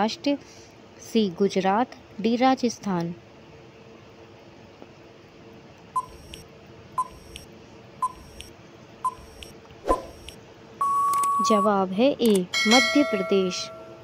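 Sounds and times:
countdown timer clicking beeps: 6.0 - 6.4, 7.0 - 8.5, 9.1 - 11.8.

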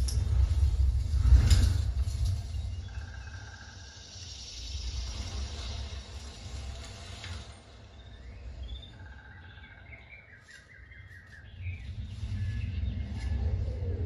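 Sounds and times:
birds chirping through speakers: 7.7 - 14.0.

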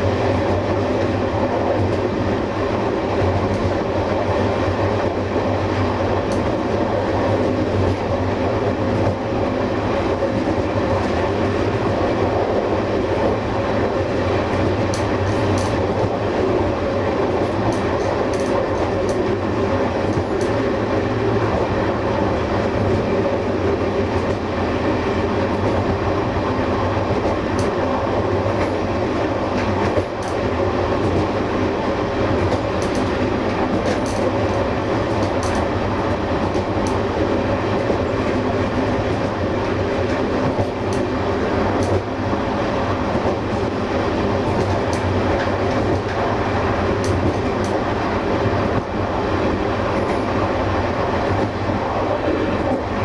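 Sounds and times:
train wheels rumbling on rail: 0.0 - 53.0
light clicks over track: 6.3 - 6.6, 14.5 - 16.2, 17.4 - 19.4, 27.2 - 27.8, 32.4 - 35.7, 36.5 - 37.0, 47.0 - 47.8.

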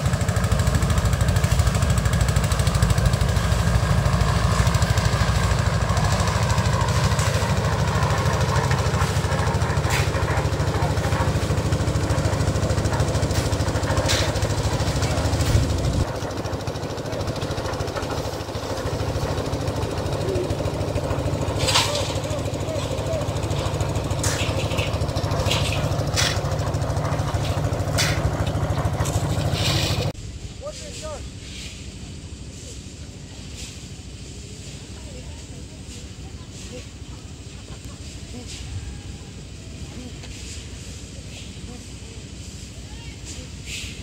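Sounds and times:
concrete mixer engine running: 0.0 - 30.2.

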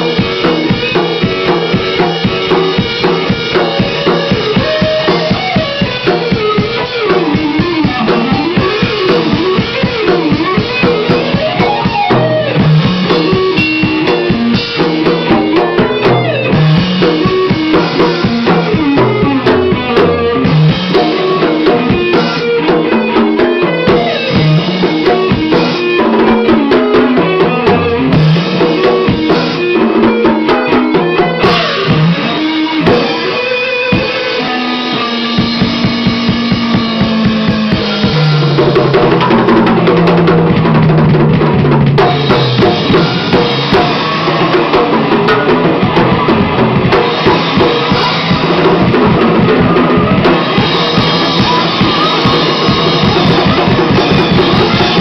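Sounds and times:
distorted electric guitar riffs: 0.0 - 55.0
driving drums: 0.0 - 55.0.

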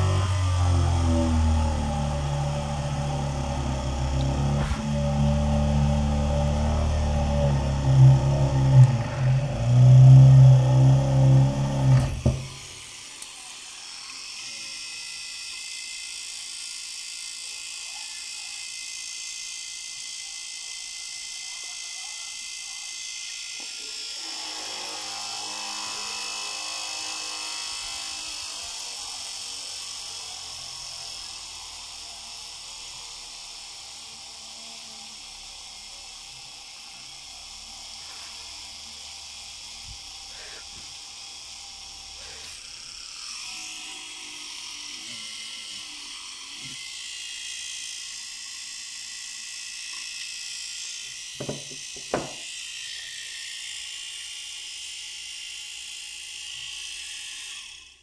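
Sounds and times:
drill whining into wood: 0.0 - 58.0.

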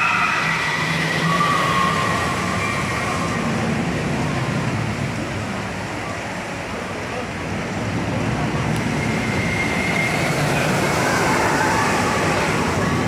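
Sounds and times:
roller coaster train rumbling: 0.0 - 13.0.

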